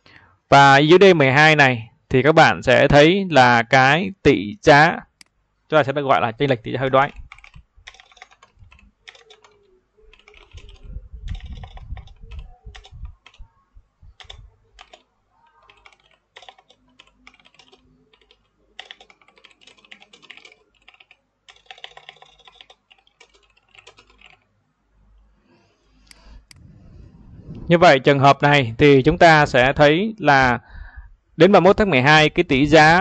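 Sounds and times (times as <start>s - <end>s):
typing on computer keyboard: 7.1s - 13.4s, 14.2s - 24.5s.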